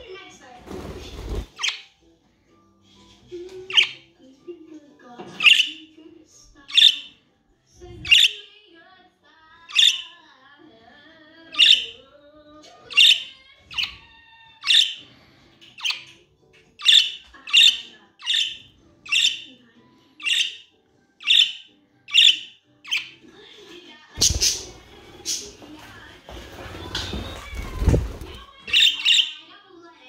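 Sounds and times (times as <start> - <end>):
budgerigars chirping: 1.4 - 2.0, 3.7 - 4.1, 5.3 - 5.9, 6.7 - 7.2, 8.0 - 8.4, 9.7 - 10.1, 11.5 - 12.0, 12.8 - 16.2, 16.8 - 19.5, 20.2 - 23.2, 24.2 - 25.6, 28.7 - 29.4.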